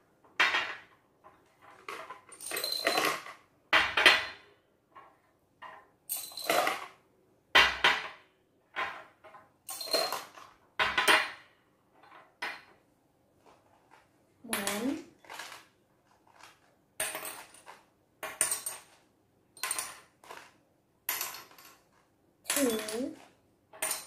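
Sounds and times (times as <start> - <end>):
glass jars clinking: 2.3 - 3.2, 22.5 - 23.2.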